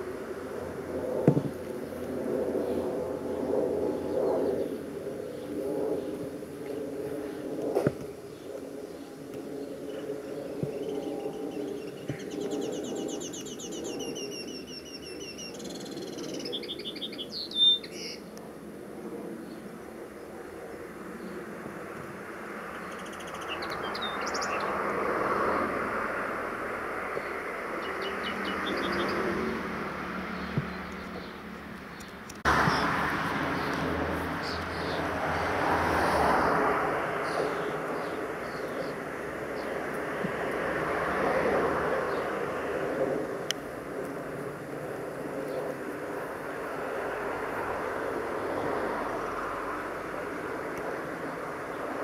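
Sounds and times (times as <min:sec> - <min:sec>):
jet airliner rumble overhead: 0:00.0 - 0:52.0
songbird singing: 0:02.6 - 0:18.4, 0:22.6 - 0:24.8, 0:27.1 - 0:35.2, 0:37.2 - 0:39.9.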